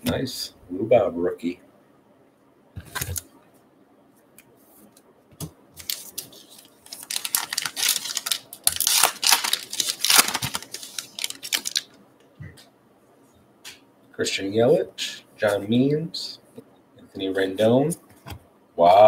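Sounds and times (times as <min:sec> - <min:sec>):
foil wrapper crinkling and tearing: 0:05.8 - 0:11.9.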